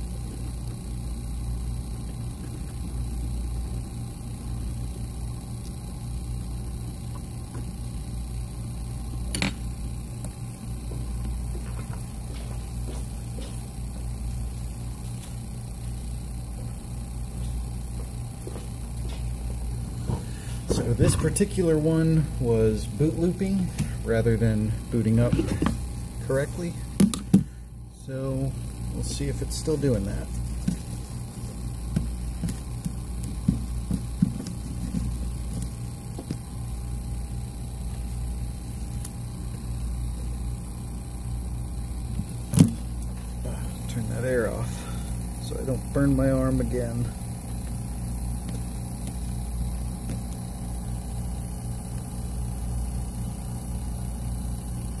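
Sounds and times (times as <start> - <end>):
low hum of hot-air station: 0.0 - 55.0
hot air blower drone: 18.4 - 37.6, 42.0 - 47.7.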